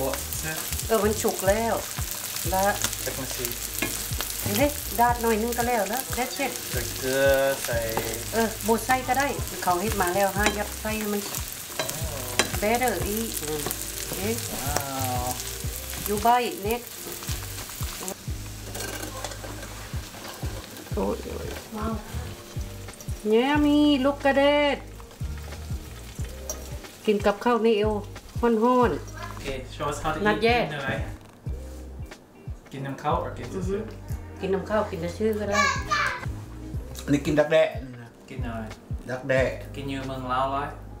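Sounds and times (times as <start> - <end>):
food sizzling in hot oil: 0.0 - 32.1
spatula scraping a pan: 17.0 - 22.5.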